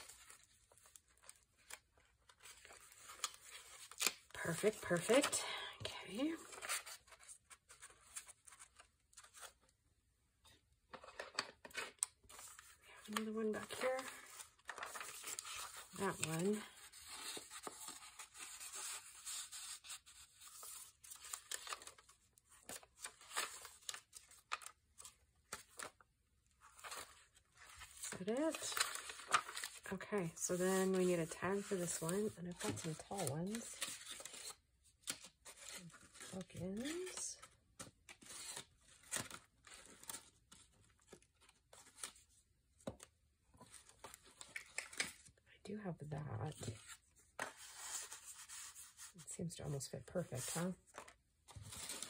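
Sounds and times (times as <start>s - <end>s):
paper rustling: 10.9s - 26.0s, 26.6s - 37.2s.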